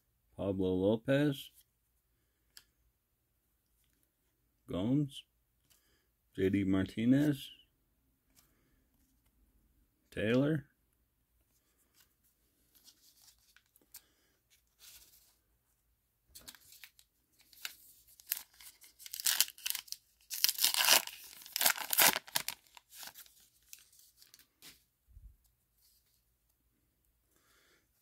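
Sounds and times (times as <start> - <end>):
wrapper tearing and crinkling: 16.5 - 24.4.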